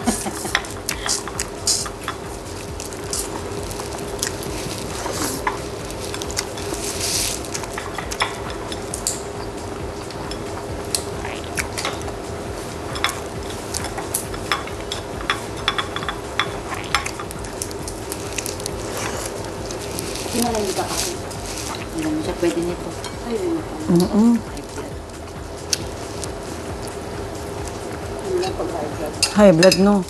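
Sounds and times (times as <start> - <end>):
steady hum: 0.0 - 30.0
chewing shrimp shells: 0.4 - 12.2, 12.8 - 22.0.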